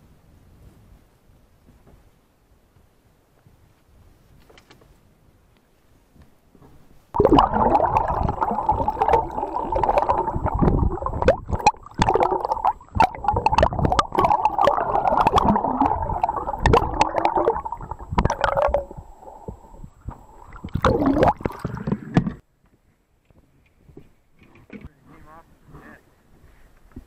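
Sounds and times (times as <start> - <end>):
water rushing and bubbling underwater: 7.2 - 22.4.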